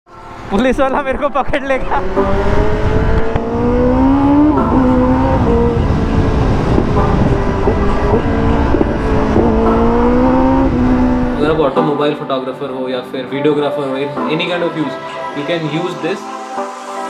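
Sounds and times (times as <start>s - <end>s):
motorcycle engine accelerating: 1.8s - 11.8s.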